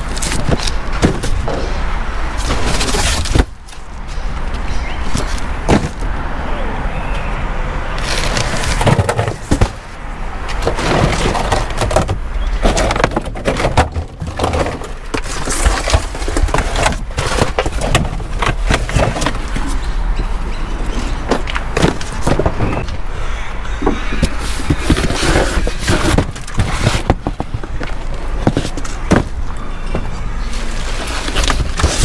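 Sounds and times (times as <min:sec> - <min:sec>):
cardboard boxes scraping and thudding: 0:02.4 - 0:03.8, 0:05.0 - 0:06.0, 0:08.0 - 0:20.0, 0:20.9 - 0:23.0, 0:23.9 - 0:32.0.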